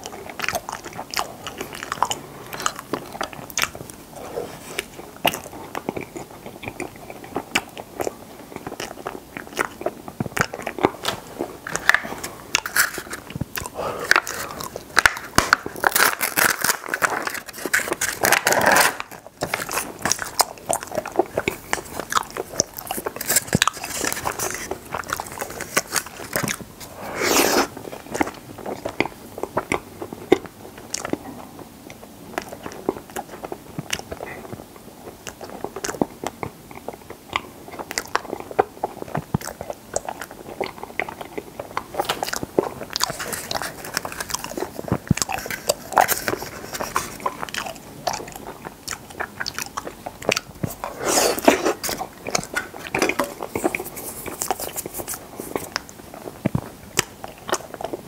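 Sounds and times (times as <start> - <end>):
biting and chewing: 0.0 - 58.0.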